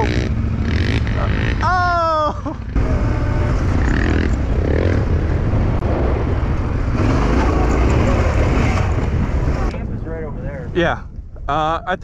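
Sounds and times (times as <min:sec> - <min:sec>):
motorcycle engine running: 0:00.0 - 0:05.8.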